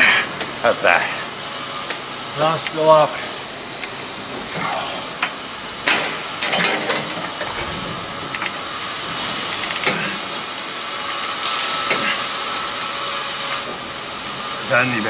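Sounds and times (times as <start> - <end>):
grinding and welding hiss: 0.0 - 15.0
high whine: 0.0 - 15.0
metallic clanks and knocks: 5.8 - 8.5.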